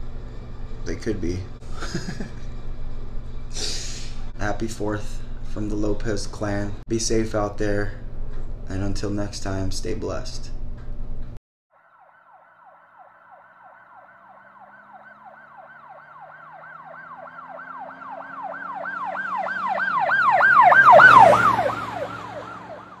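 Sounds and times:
siren yelping: 11.8s - 23.0s.

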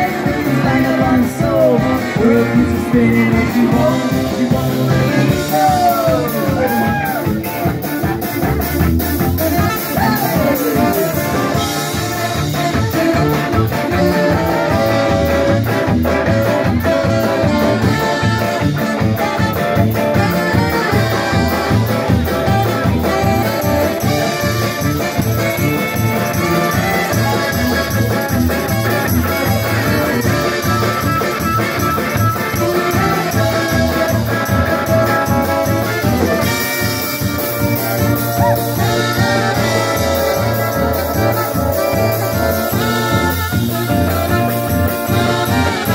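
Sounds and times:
brass-funk band playing: 0.0s - 45.9s
saxophone: 0.0s - 45.9s
sousaphone: 23.2s - 45.9s.

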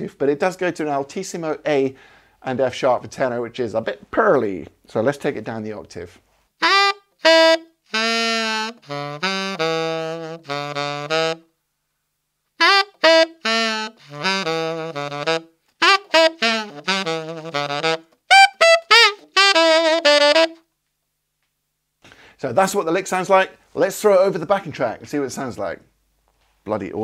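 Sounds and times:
tenor saxophone blues lick: 6.6s - 11.5s, 12.6s - 20.7s.

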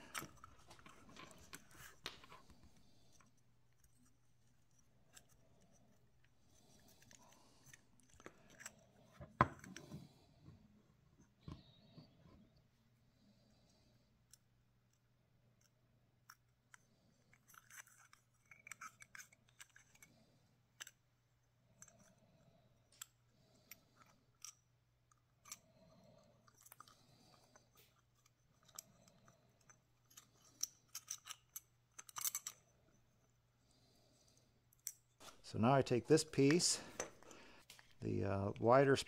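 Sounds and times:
small plastic parts clicking: 14.2s - 21.1s, 22.9s - 32.9s.

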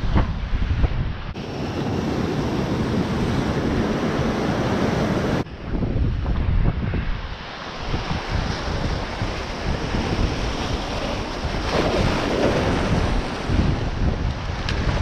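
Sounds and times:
wind buffeting microphone: 0.0s - 15.0s
surf washing over boulders: 1.3s - 15.0s.

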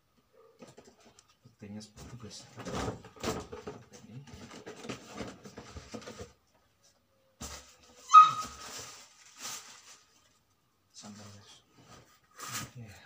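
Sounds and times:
wrapping paper rustling and tearing: 7.4s - 10.5s
short high-pitched squeal: 8.0s - 8.7s.

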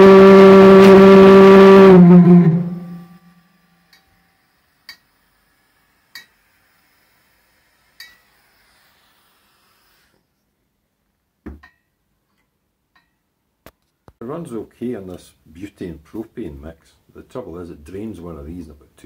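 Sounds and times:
pulse jet low drone: 0.0s - 3.4s.

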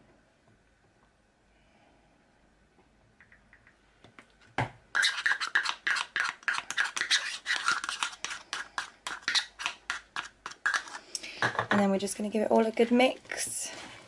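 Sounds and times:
metal spoon scraping plastic cup: 5.0s - 11.2s.

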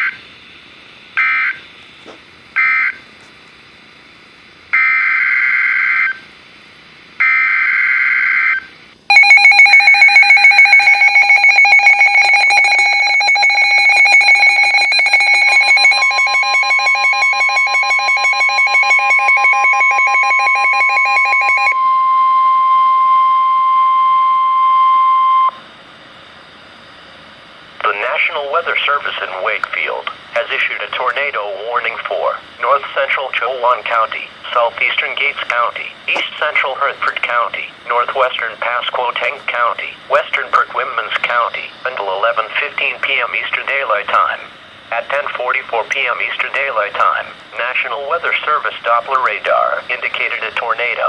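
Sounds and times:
steady warning alarm tone: 0.0s - 3.1s, 3.8s - 6.4s, 7.2s - 25.7s
rapidly pulsing alarm beeps: 1.2s - 1.7s, 2.6s - 3.0s, 4.8s - 6.2s, 7.2s - 25.6s.

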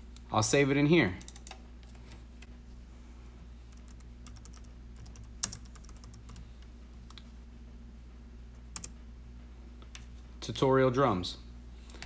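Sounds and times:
faint steady hum: 0.0s - 12.0s
typing on computer keyboard: 1.2s - 1.6s, 3.7s - 6.4s.

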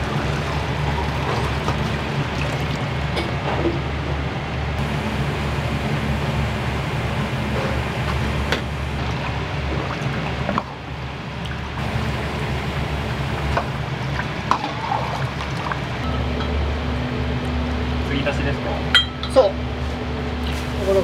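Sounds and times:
extractor fan: 0.0s - 21.0s
gas wok burners roaring: 0.0s - 21.0s
metal utensils clinking: 18.9s - 19.5s.

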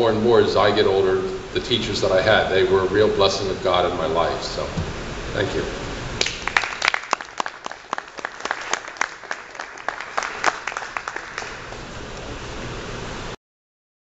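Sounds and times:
audience applauding: 6.2s - 12.3s.

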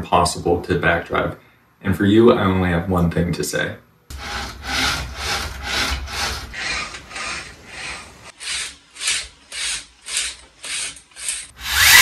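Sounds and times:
gearmotors whirring when backdriven: 4.1s - 12.0s.

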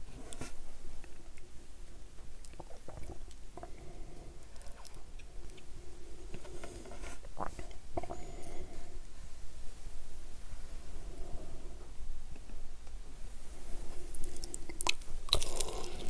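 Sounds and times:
soft mouth clicks and smacks: 2.4s - 3.4s
chewing and wet mouth sounds: 2.4s - 3.8s, 14.1s - 16.0s.

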